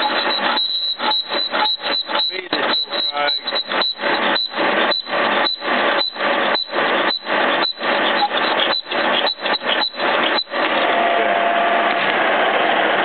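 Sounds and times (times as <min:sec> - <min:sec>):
boring bar cutting metal: 0:00.0 - 0:11.2.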